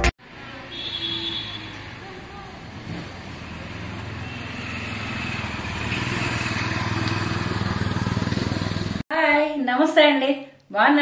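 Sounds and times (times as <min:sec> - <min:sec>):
engine running: 0:02.3 - 0:09.0.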